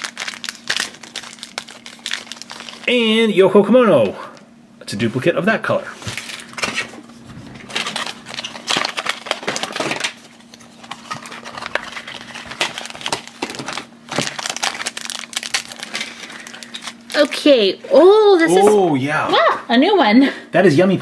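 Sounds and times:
plastic packaging clicking: 0.0 - 2.9, 7.7 - 17.3
foil bag crinkling: 0.0 - 3.0, 7.5 - 17.6.

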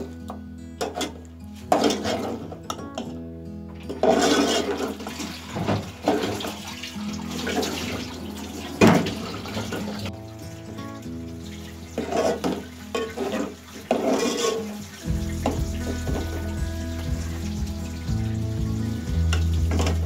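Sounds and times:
background music sustained notes: 0.0 - 20.0
spoon stirring hissing gravy: 10.8 - 20.0.

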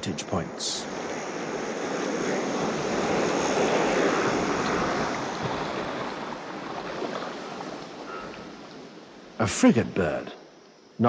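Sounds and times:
surf washing onto a beach: 0.0 - 8.5.

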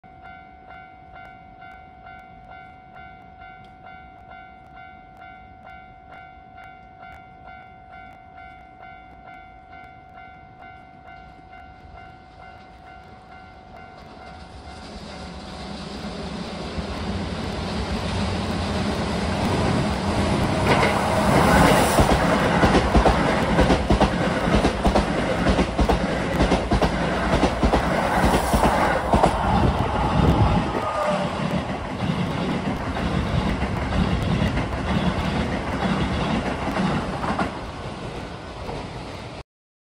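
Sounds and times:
level-crossing warning bell ringing: 0.0 - 15.4
electric train passing: 0.2 - 39.4
wheels clacking over rail joints: 17.0 - 39.3.

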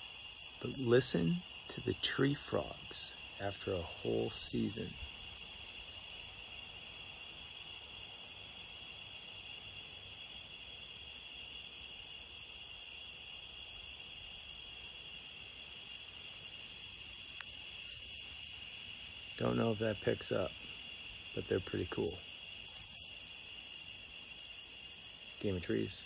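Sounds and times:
tree frogs chorus: 0.0 - 26.0.

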